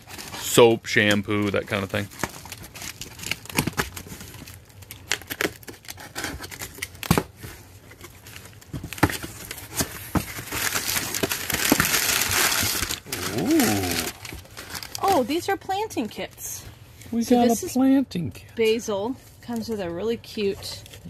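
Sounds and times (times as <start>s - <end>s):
packing paper crinkling: 0.0s - 15.5s
cardboard flaps tearing: 8.7s - 15.2s.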